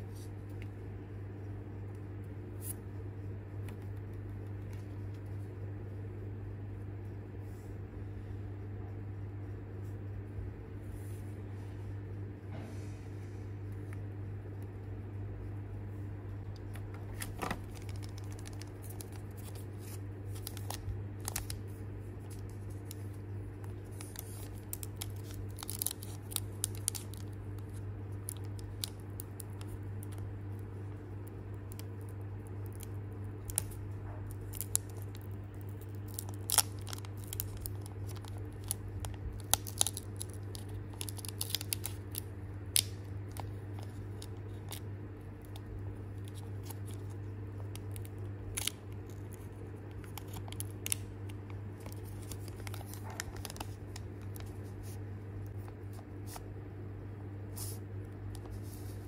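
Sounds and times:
steady low hum: 0.0s - 59.0s
foil wrapper crinkling and tearing: 16.6s - 56.4s.

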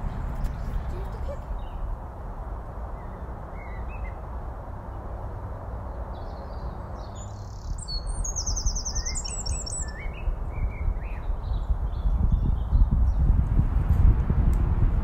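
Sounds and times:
small songbirds chirping: 0.0s - 2.1s, 2.8s - 13.4s
high bird song notes: 3.0s - 4.2s, 6.1s - 13.2s.

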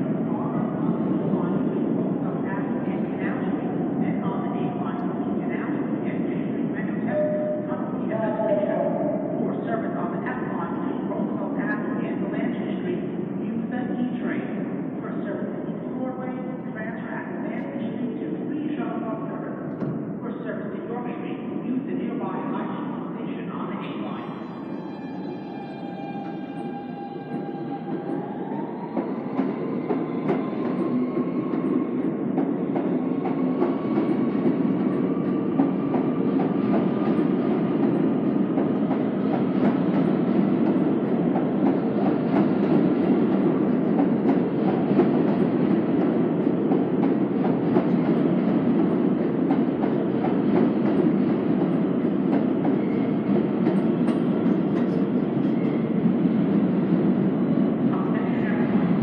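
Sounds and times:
train wheels rumbling on rail: 25.9s - 59.0s.

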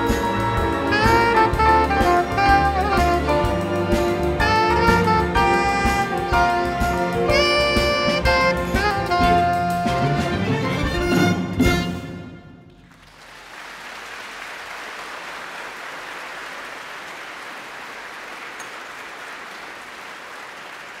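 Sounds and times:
jazz ensemble with orchestra: 0.0s - 12.8s
audience applauding: 12.7s - 21.0s.

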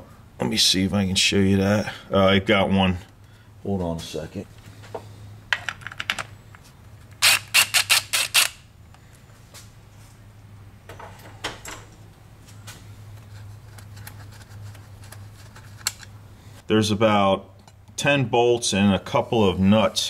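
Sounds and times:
steady low hum: 0.0s - 20.0s
ratchet clicking: 7.2s - 8.6s.

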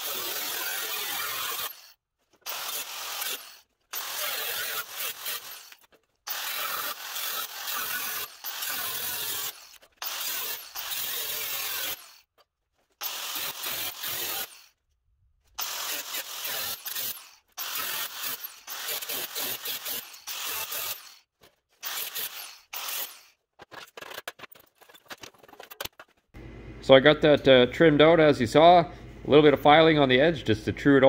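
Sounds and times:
angle grinder cutting steel: 0.0s - 12.3s, 13.0s - 14.8s, 15.6s - 23.4s.

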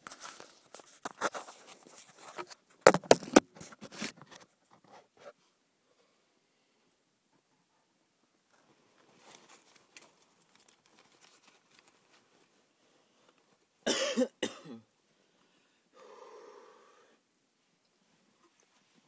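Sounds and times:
person coughing hard: 13.8s - 14.9s.

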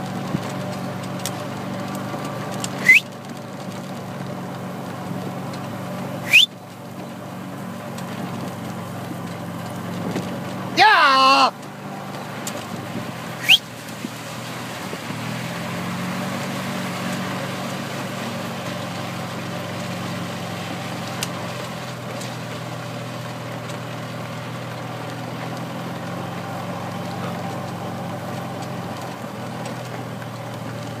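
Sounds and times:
golf cart motor humming: 0.0s - 31.0s
rumble of travel: 0.0s - 31.0s
sharp rising squeal: 2.8s - 3.0s, 6.2s - 6.5s, 13.4s - 13.6s.

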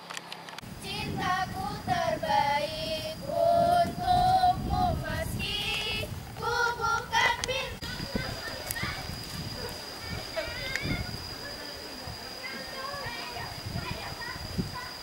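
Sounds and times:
girls singing loudly: 0.8s - 8.3s.

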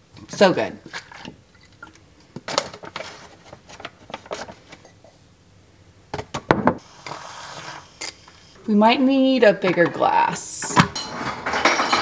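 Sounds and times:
clicks and knocks of containers: 0.8s - 4.8s, 10.7s - 12.0s.

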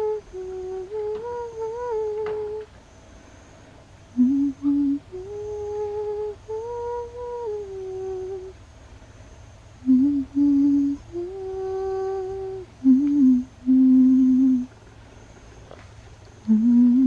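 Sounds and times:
person humming a lullaby: 0.0s - 2.7s, 4.2s - 8.6s, 9.8s - 14.7s, 16.4s - 17.0s.

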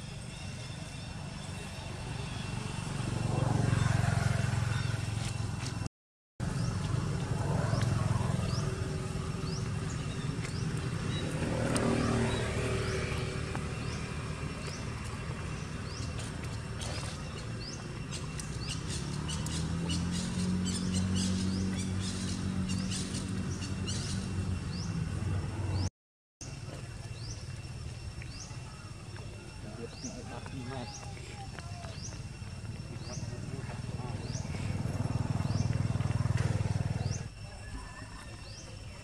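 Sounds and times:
low engine hum: 1.0s - 25.9s, 26.5s - 37.4s
bird chirping: 7.6s - 36.3s.

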